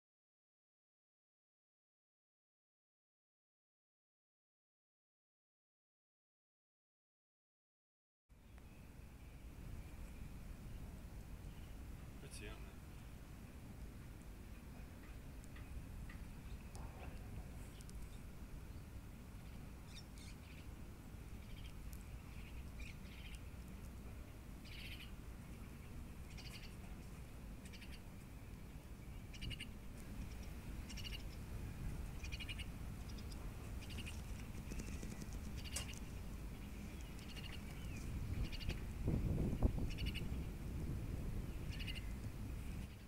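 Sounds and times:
steady low rumble: 0:08.3 - 0:43.0
bird chirping: 0:17.6 - 0:20.8, 0:21.4 - 0:23.5, 0:24.6 - 0:27.0, 0:27.6 - 0:28.1, 0:28.7 - 0:31.5, 0:32.1 - 0:38.8, 0:39.6 - 0:40.5, 0:41.5 - 0:43.0.

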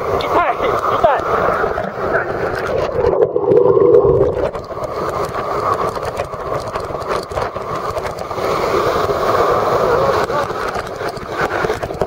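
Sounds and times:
waterfall rushing: 0:08.3 - 0:11.9.

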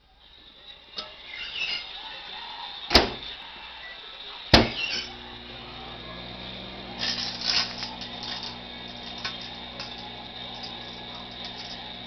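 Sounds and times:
microwave humming: 0:00.2 - 0:12.0
cd sparking and crackling: 0:02.9 - 0:03.5, 0:04.2 - 0:12.0
microwave door clacks: 0:04.6 - 0:04.9.

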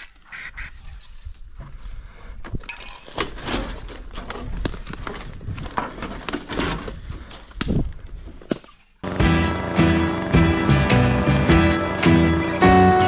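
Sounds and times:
rustling and crackling: 0:00.0 - 0:09.0.

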